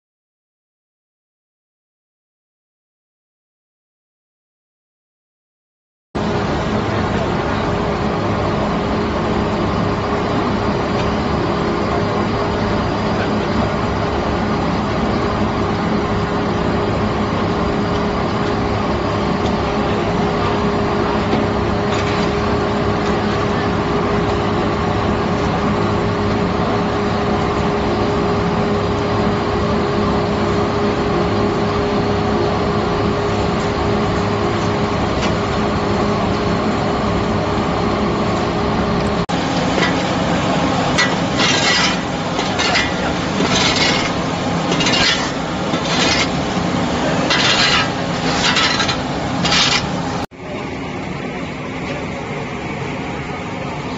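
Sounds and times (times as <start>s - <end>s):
machinery drone: 6.2s - 53.9s
repeated scraping strokes: 39.6s - 50.3s.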